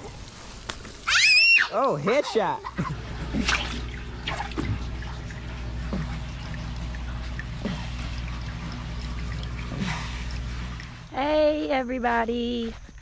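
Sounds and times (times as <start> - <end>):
water trickling and dripping: 0.0 - 11.7
aquarium filter humming: 0.0 - 12.0
water drips and plops: 2.8 - 11.1.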